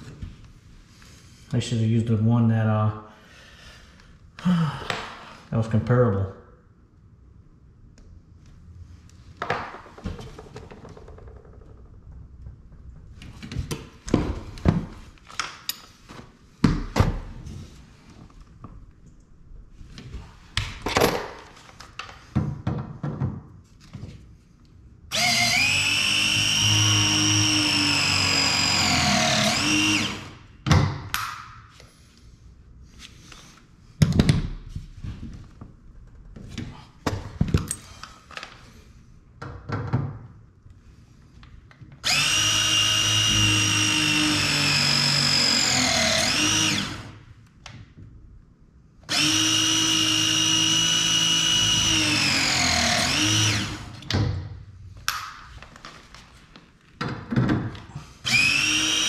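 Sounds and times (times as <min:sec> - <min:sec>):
press tool motor whine: 0:25.1 - 0:30.3, 0:42.0 - 0:47.1, 0:49.1 - 0:53.9.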